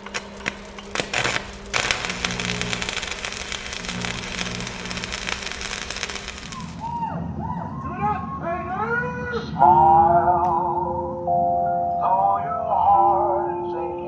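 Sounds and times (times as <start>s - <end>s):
fire crackling: 0.0s - 7.1s
low hum: 0.0s - 12.0s.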